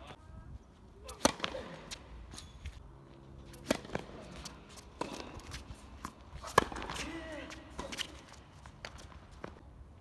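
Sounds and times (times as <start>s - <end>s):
tennis ball struck by rackets: 1.0s - 2.1s, 3.5s - 8.2s
tennis ball bouncing on court: 1.2s - 2.5s, 3.5s - 8.2s.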